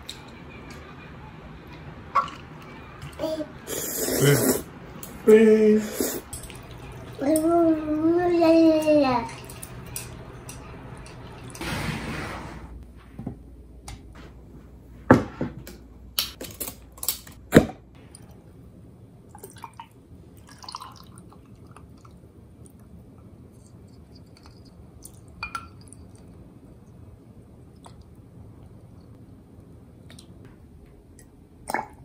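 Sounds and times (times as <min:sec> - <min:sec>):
drips: 0:06.1 - 0:11.6
liquid pouring over ice: 0:20.4 - 0:21.8.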